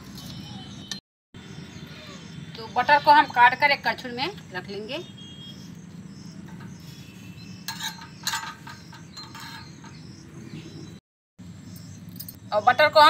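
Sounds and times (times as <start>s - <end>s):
knife clinking on metal ladle: 7.7s - 9.9s.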